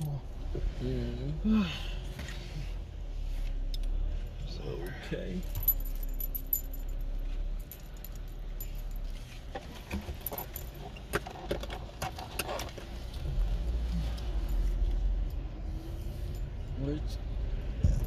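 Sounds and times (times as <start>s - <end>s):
car cabin rumble: 0.0s - 18.0s
light metallic jingling: 4.8s - 11.1s.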